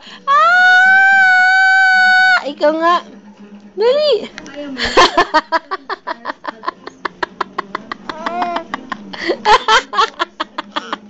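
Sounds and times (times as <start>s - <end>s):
baby laughing: 8.0s - 9.0s, 10.6s - 11.0s.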